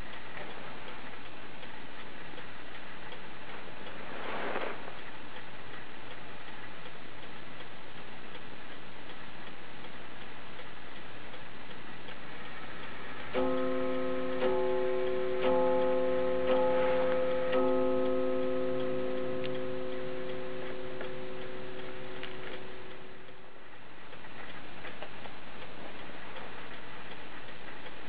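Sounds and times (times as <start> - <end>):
mantel clock ticking: 0.0 - 4.1, 4.9 - 28.0
clock striking the hour: 4.9 - 28.0.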